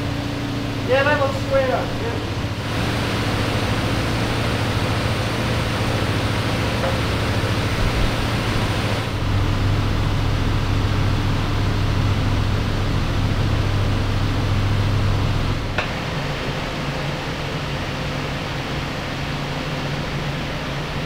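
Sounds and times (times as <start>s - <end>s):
low machine hum: 0.0s - 21.0s
hiss: 2.6s - 9.2s.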